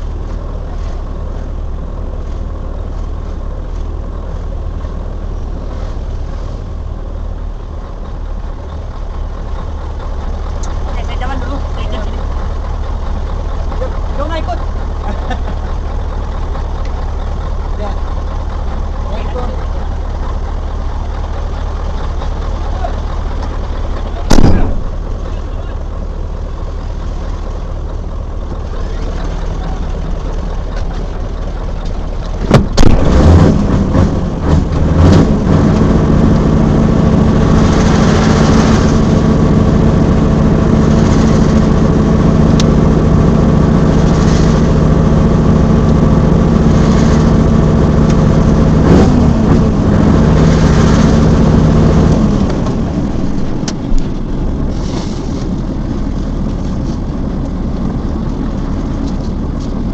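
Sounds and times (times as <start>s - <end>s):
diesel engine drone: 0.0s - 59.9s
sharp engine knocks: 23.2s - 25.4s, 30.0s - 36.5s.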